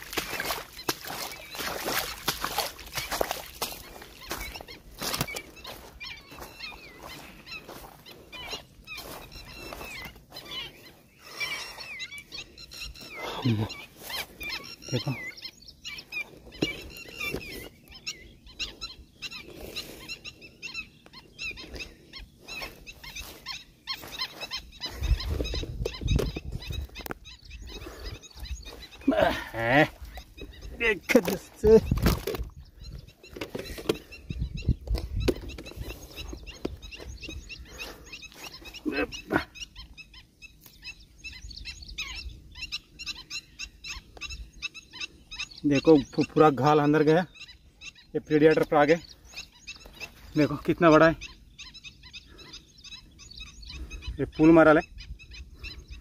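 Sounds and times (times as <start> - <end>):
high chirping animal calls: 0.0 - 56.0
wind rumbling on microphone: 21.3 - 38.1, 52.2 - 56.0.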